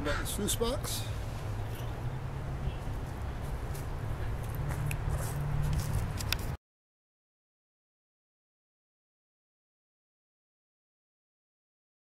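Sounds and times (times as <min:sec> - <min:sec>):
footsteps on dry grass and leaves: 0:03.0 - 0:06.6.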